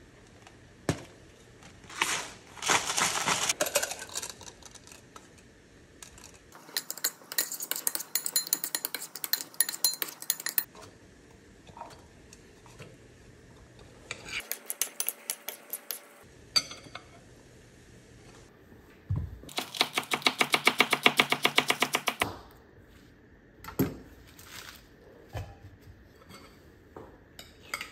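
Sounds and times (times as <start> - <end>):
seasoning rustling from bottle: 1.9 - 5.0
metal spoon clinking on glass: 6.6 - 10.7.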